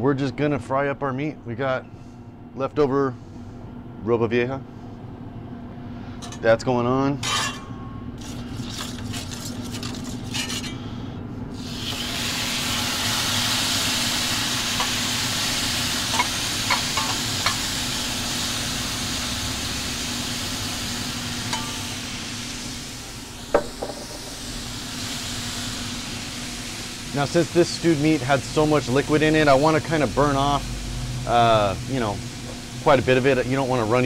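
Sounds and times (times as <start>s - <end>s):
steady low hum: 0.0s - 34.0s
meat sizzling on hot skillet: 11.6s - 34.0s
single knock: 23.5s - 24.3s.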